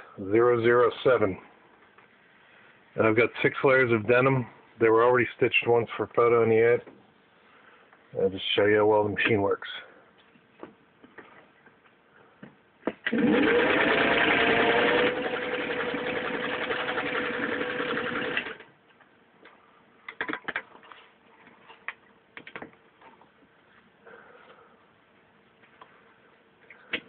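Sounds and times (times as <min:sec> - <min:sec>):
sewing machine stitching: 0:13.1 - 0:18.6.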